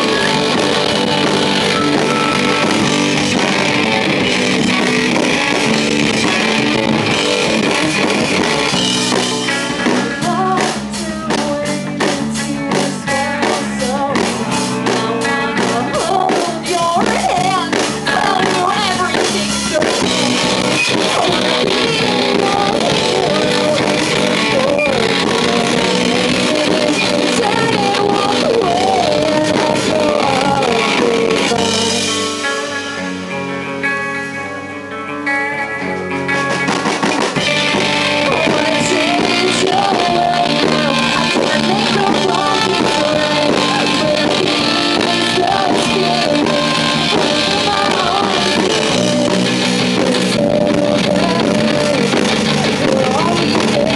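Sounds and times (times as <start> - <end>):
female lead vocals: 0.0 - 33.0, 37.4 - 53.9
distorted electric guitar: 0.0 - 53.9
drum kit: 0.0 - 53.9.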